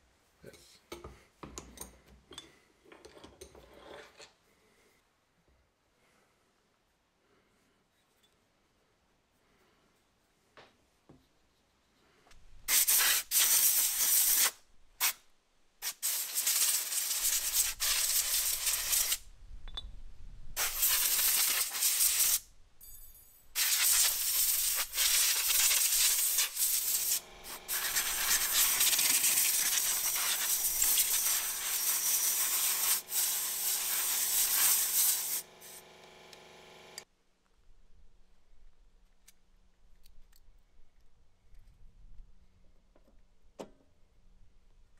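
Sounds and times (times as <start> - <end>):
air blow gun hissing: 12.7 - 15.2, 15.8 - 19.2, 20.6 - 22.4, 23.6 - 37.0.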